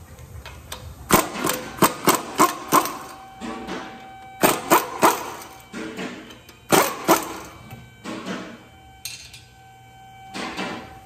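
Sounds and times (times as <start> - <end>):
impact wrench bursts: 1.1 - 3.2, 4.4 - 5.6, 6.7 - 7.6.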